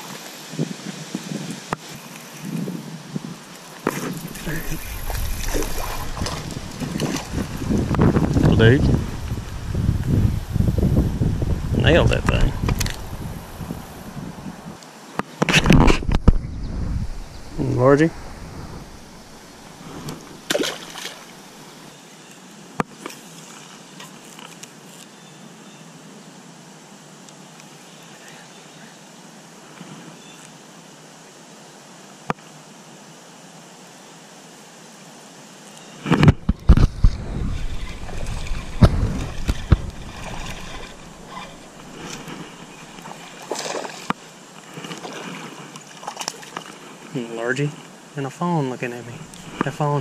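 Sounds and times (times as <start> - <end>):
steady background hiss: 0.0 - 50.0
water sloshing and splashing: 3.6 - 9.7, 17.0 - 21.8, 36.2 - 47.1
fishing rod and reel knocking: 36.4 - 44.1.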